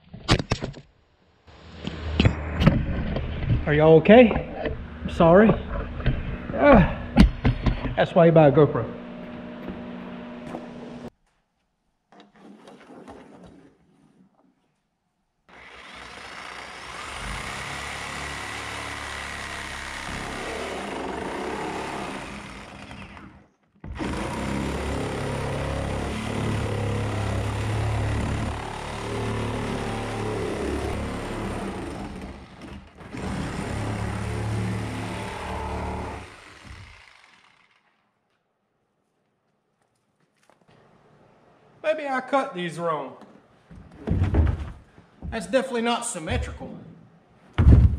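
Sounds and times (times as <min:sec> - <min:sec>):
power saw cutting plastic: 0:15.5 - 0:38.3.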